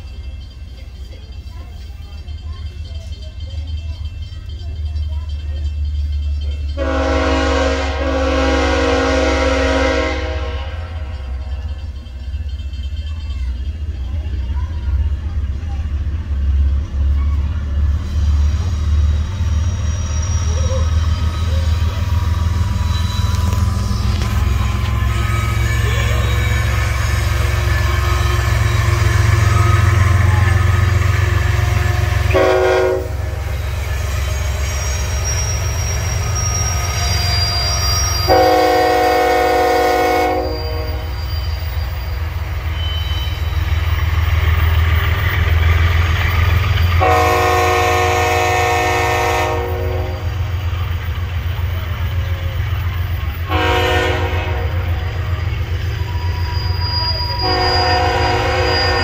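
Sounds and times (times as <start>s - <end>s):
diesel engine rumble: 0.0s - 58.6s
rolling freight cars: 0.0s - 59.0s
locomotive air horn blasts: 6.8s - 11.2s, 31.1s - 33.5s, 38.2s - 41.2s, 47.0s - 50.4s, 53.4s - 55.2s, 57.4s - 59.0s.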